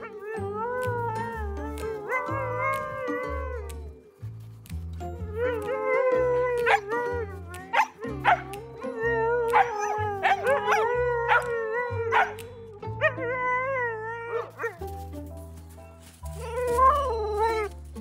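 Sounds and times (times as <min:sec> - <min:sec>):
dog howling: 0:00.0 - 0:04.0, 0:05.2 - 0:14.8
background music with bass: 0:00.0 - 0:18.0.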